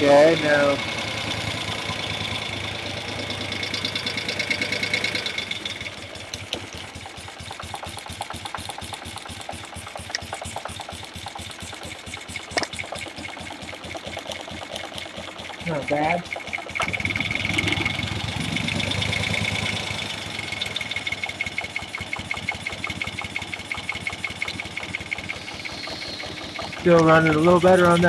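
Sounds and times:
motorcycle engine running: 0.0 - 28.0.

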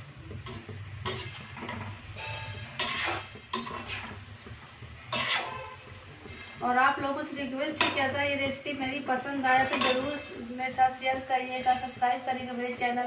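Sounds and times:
metal spoon clinking on pan: 0.4 - 3.9, 7.8 - 8.1, 9.6 - 10.2.

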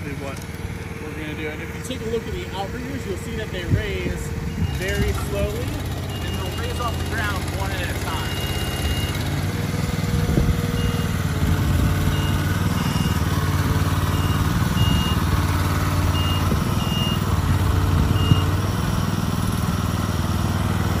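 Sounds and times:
gasoline engine running: 0.0 - 21.0
short high beeps: 6.1 - 7.2, 8.2 - 9.2.

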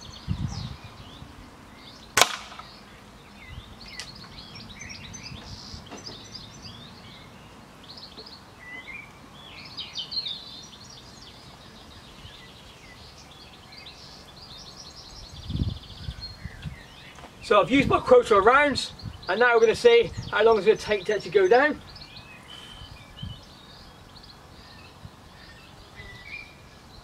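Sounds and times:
birds singing: 0.0 - 27.0
air rifle shot: 2.2 - 2.8.

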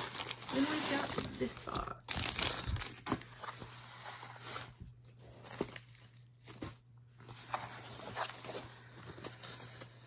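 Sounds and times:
cardboard box rustling: 2.2 - 10.0.

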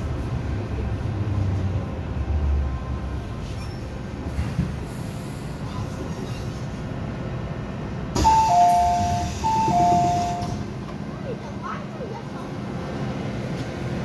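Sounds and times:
train rumbling: 0.0 - 14.0
train doors clunking open: 8.1 - 11.1
two-note door chime: 8.2 - 10.6.

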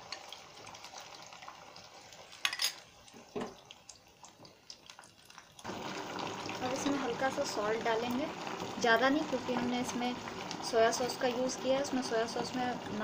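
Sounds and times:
spoon clinking on pan: 2.4 - 2.8.

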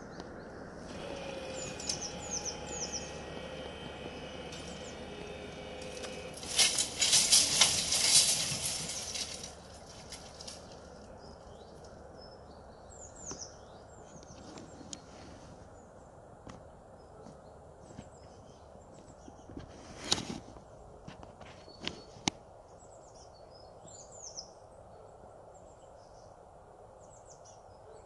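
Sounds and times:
barrier drive humming: 0.0 - 15.0
small birds chirping: 0.0 - 20.1, 21.5 - 26.4
loud crackling rustle: 0.8 - 12.0.

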